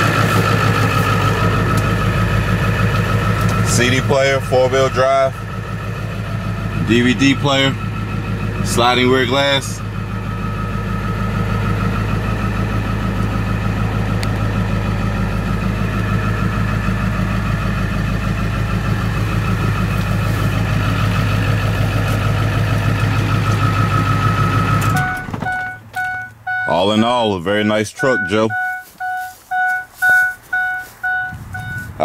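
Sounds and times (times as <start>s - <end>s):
diesel engine idling: 0.0s - 32.0s
repeating electronic chime: 28.0s - 32.0s.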